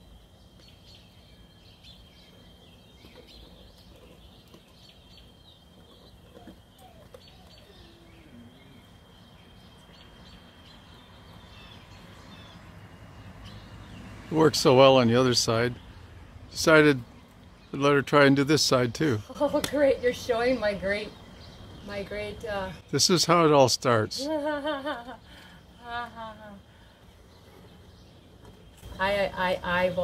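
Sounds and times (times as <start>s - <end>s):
bird chirps: 0.0s - 14.2s.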